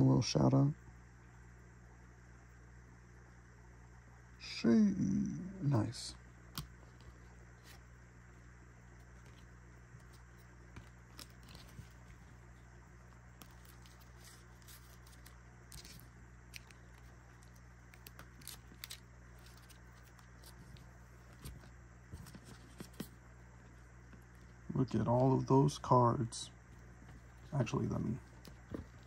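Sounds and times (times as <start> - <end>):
steady low hum: 0.0 - 29.0
paper cards clicking and rustling: 8.9 - 24.6, 26.7 - 29.0.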